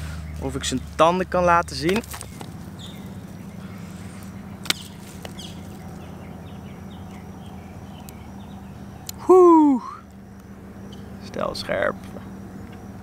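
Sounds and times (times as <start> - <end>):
bird chirps: 0.0 - 11.3
steady low hum: 0.0 - 13.0.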